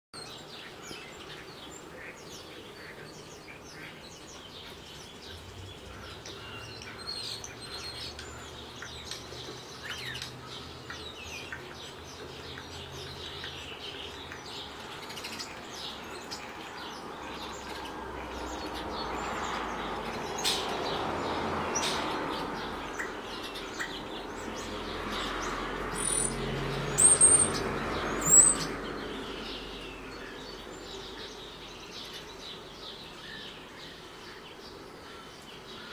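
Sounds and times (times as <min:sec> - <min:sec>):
starling singing: 0:22.6 - 0:34.1.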